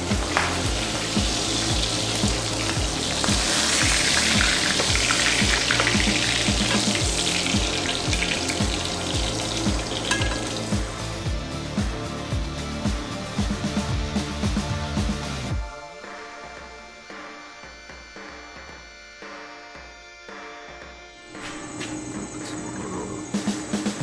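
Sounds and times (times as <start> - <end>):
meat sizzling in skillet: 0.0 - 11.4.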